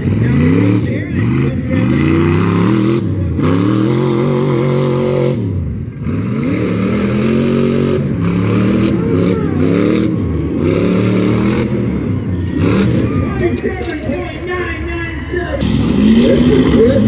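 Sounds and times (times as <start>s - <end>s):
truck engine revving: 0.0s - 17.0s.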